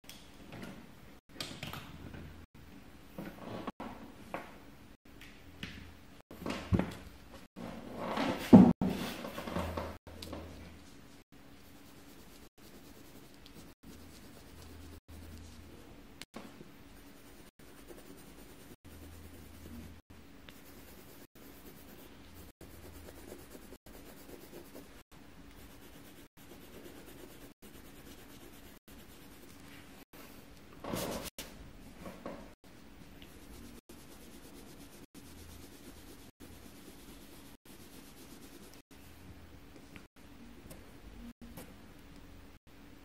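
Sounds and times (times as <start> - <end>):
pencil scratching on paper: 11.6 - 15.7, 17.0 - 29.9, 33.2 - 38.9.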